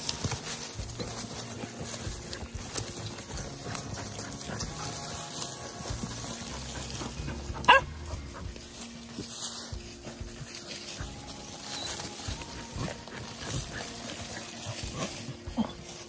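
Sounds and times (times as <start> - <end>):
dogs scrabbling in dry leaves: 0.0 - 16.0
dog yelping: 6.5 - 8.6, 12.7 - 16.0.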